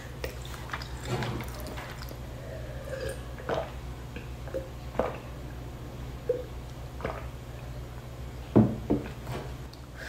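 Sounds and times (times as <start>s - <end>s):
person swallowing gulps: 0.0s - 5.4s
steady low hum: 0.0s - 10.0s.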